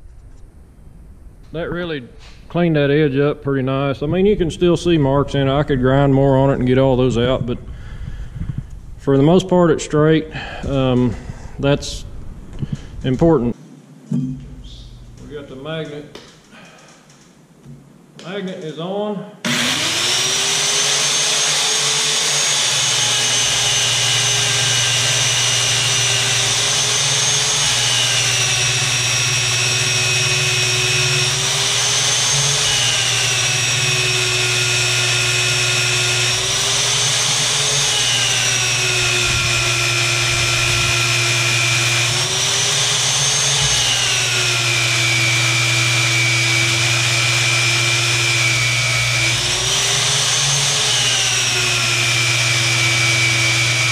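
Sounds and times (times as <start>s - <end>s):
magnetic drill cutting steel: 19.5s - 53.9s.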